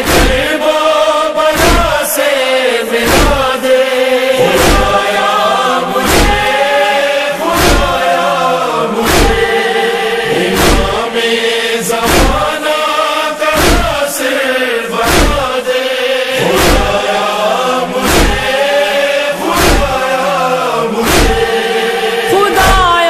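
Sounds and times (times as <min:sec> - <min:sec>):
chest-beating thumps: 0:00.0 - 0:00.5, 0:01.5 - 0:02.0, 0:03.0 - 0:03.6, 0:04.4 - 0:05.2, 0:06.0 - 0:06.6, 0:07.5 - 0:08.1, 0:09.0 - 0:09.7, 0:10.3 - 0:11.2, 0:12.0 - 0:12.6, 0:13.5 - 0:14.0, 0:15.0 - 0:15.6, 0:16.4 - 0:17.1, 0:18.0 - 0:18.7, 0:19.5 - 0:20.2, 0:21.0 - 0:21.9
male chorus chanting: 0:00.0 - 0:23.0
steady drone: 0:02.8 - 0:23.0.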